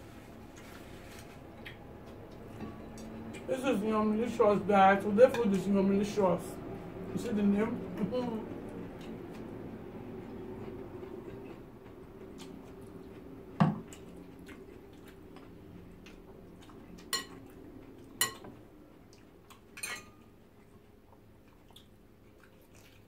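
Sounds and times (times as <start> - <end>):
low steady hum: 0.0 - 23.0
metal cutlery clinking on glass dishes: 19.8 - 20.3.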